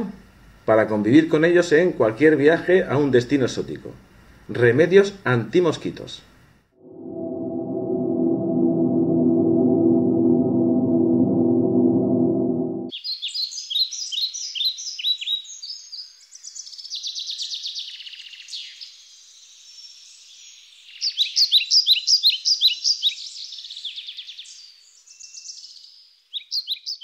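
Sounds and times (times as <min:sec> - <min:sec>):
low ringing gong-like tone: 0:06.8 - 0:12.9.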